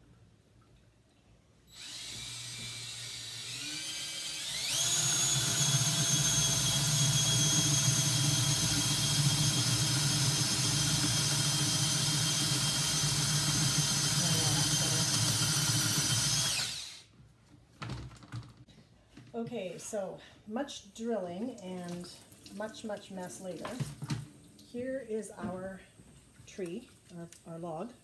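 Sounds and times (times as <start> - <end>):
cordless drill boring into log: 1.7 - 17.1.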